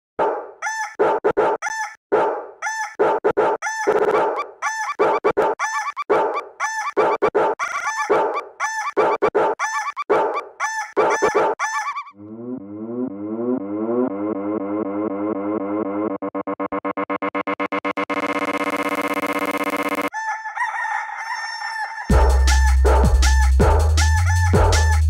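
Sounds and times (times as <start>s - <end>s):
looped rooster crowing samples: 0.6s - 2.0s, 2.6s - 12.2s, 18.7s - 25.0s
synthesizer bass line: 12.2s - 20.1s, 22.1s - 25.0s.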